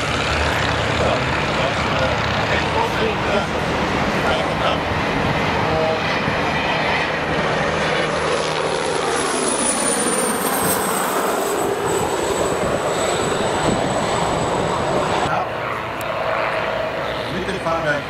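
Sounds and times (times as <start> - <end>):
propeller planes droning: 0.0 - 18.0.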